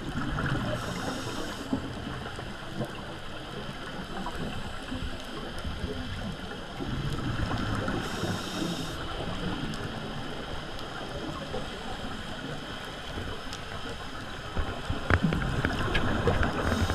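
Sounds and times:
exhaled bubbles rumbling: 0.0s - 16.9s
muffled underwater noise: 0.0s - 16.9s
sharp crackles: 3.6s - 16.9s.

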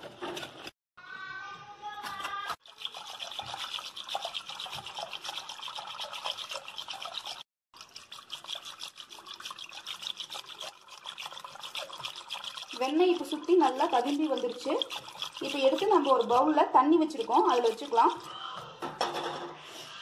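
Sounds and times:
whisk swishing in liquid: 2.6s - 18.5s.

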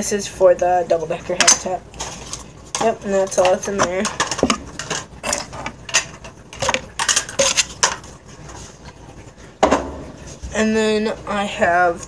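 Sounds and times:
plastic tubes clattering: 1.3s - 10.0s.

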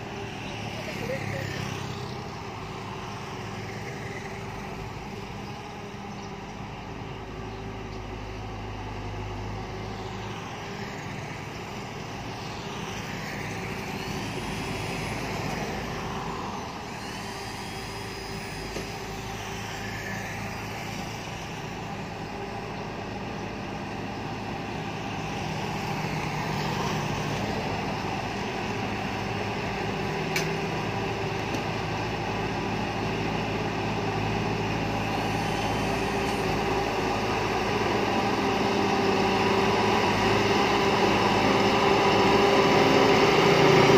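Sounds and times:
bulldozer diesel engine running: 0.0s - 43.9s
sharp click: 30.3s - 30.6s.

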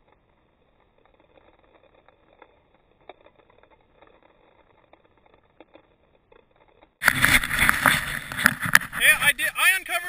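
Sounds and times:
camera handling noise: 6.6s - 9.0s
footsteps crunching in snow: 7.0s - 9.4s.

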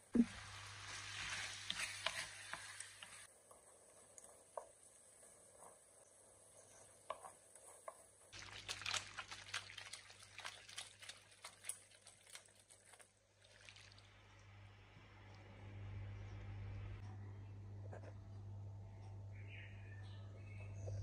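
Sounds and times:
pasta squelching in frying pan: 0.2s - 14.1s.

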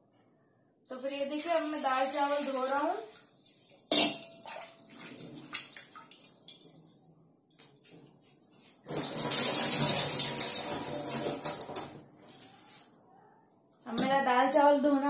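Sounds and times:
water splashing in steel sink: 0.9s - 6.9s, 8.9s - 12.0s.

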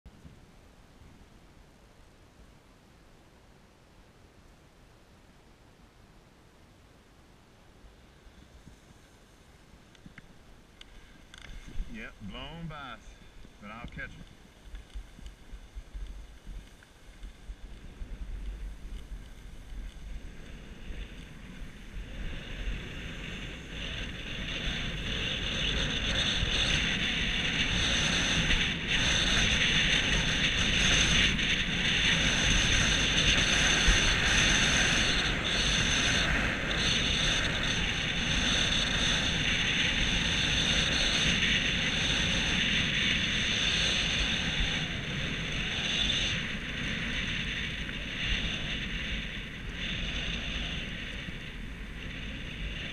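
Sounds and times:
wind on microphone: 11.2s - 52.9s.

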